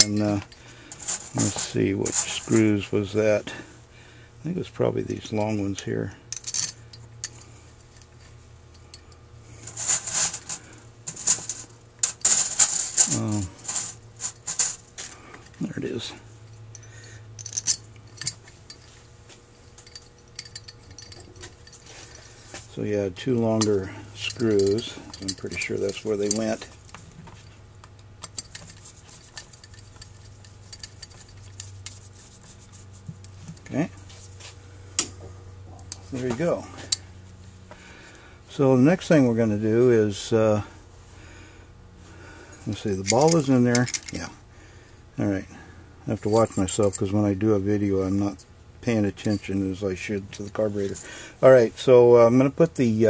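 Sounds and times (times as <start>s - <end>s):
scraping and rustling: 0.0s - 2.9s, 9.6s - 15.5s
low steady hum: 0.0s - 53.0s
hands handling small screws: 9.6s - 15.6s, 16.7s - 19.0s, 19.7s - 22.3s, 23.4s - 32.6s, 42.7s - 44.3s.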